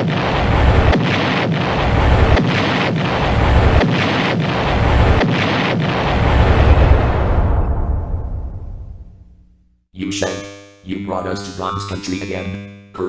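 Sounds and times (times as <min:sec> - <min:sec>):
explosions with deep rumble: 0:00.0 - 0:09.4.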